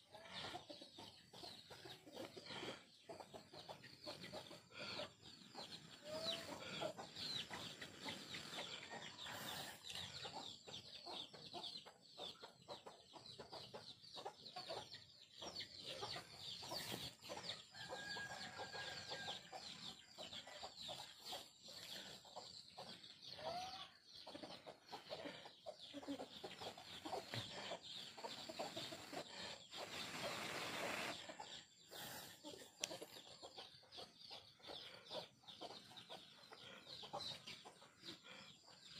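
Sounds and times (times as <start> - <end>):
chickens clucking: 0.0 - 38.9
rustling hiss: 29.9 - 31.2.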